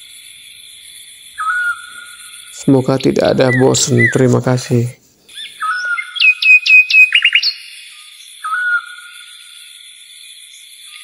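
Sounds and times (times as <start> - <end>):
bird singing whistled notes: 1.4 - 4.4, 5.3 - 9.5.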